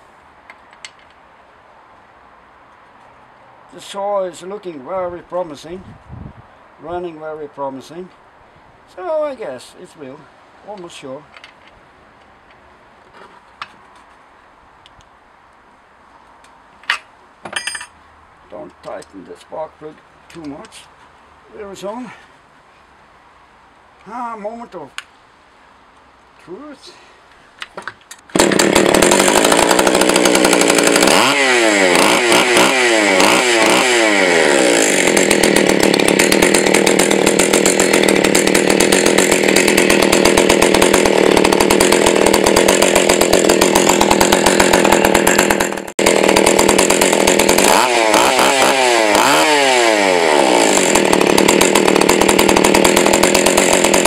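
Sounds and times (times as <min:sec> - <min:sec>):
chainsaw revving: 0:28.3 - 0:54.0.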